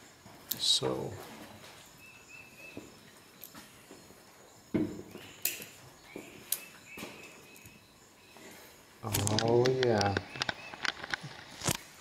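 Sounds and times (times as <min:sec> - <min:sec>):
wire strippers clicking and snipping: 0:05.4 - 0:05.8, 0:09.0 - 0:11.8
handling noise: 0:09.0 - 0:12.0.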